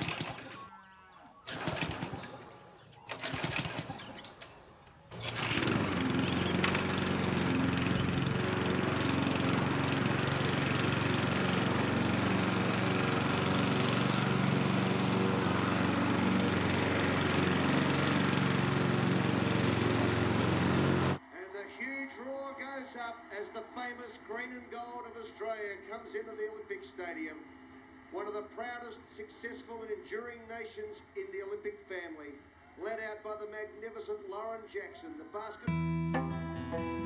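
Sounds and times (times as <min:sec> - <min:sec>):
lawn mower starting and running: 0:00.0 - 0:00.7, 0:01.4 - 0:21.2.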